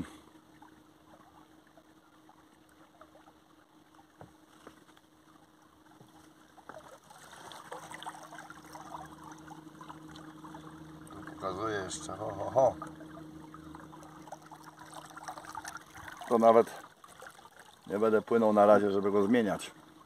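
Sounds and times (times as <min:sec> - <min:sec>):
water lapping against dinghy: 0:00.0 - 0:20.0
electric motor hum: 0:07.3 - 0:16.2.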